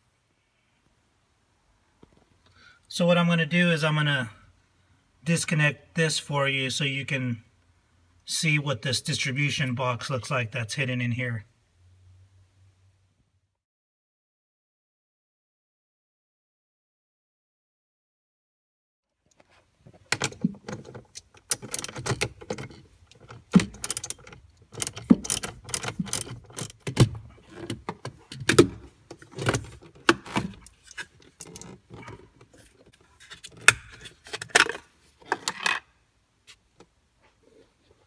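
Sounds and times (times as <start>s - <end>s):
clicks and knocks of battery hardware: 20.1s - 32.2s.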